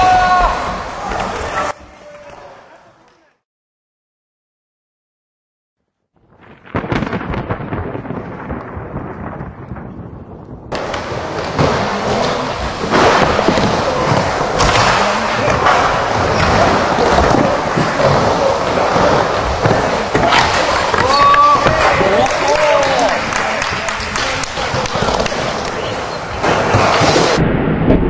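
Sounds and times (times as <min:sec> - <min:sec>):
skateboard wheels rolling: 0:10.8 - 0:27.4.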